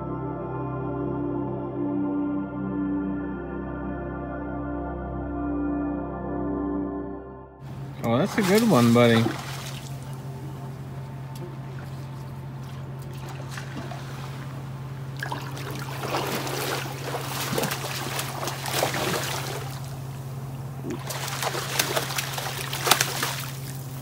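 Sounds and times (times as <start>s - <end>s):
steady low hum: 7.6s - 24.0s
fish splashing water: 7.7s - 24.0s.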